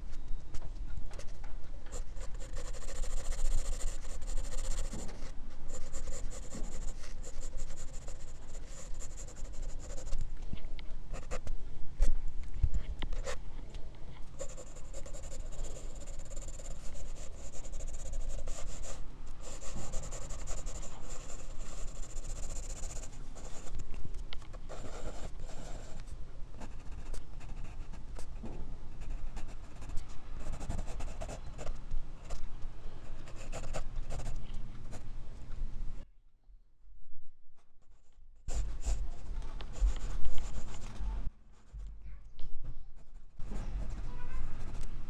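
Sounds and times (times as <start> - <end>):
pencil scratching on paper: 1.9 - 10.2, 14.4 - 23.8, 24.7 - 26.0, 29.0 - 31.7, 33.3 - 34.4, 38.5 - 41.0.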